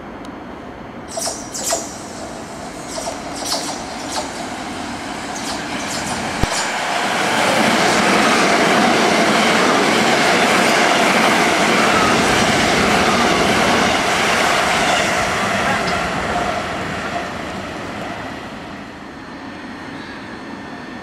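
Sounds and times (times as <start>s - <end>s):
train wheels rushing on rail: 1.1s - 21.0s
sharp knock: 5.4s - 6.8s.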